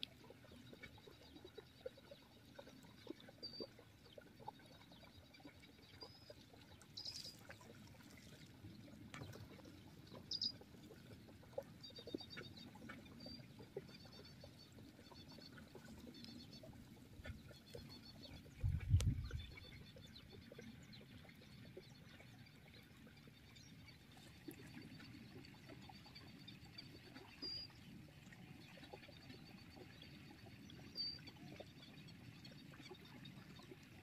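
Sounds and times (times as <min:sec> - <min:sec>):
small birds chirping: 0:08.8 - 0:22.4.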